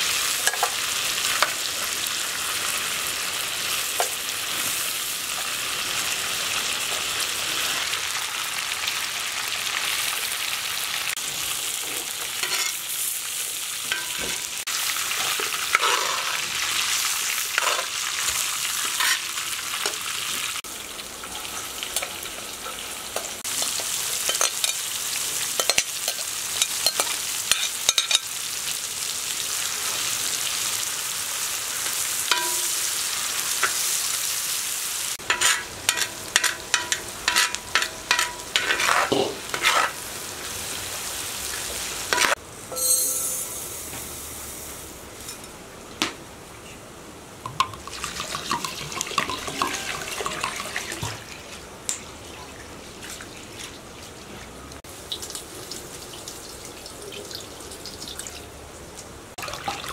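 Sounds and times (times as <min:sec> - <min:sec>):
onions sizzling in oil: 0:00.0 - 0:46.0, 0:47.4 - 0:51.4, 0:54.8 - 0:58.1
metal spatula scraping iron pan: 0:15.2 - 0:16.5, 0:18.9 - 0:19.3, 0:35.2 - 0:40.0.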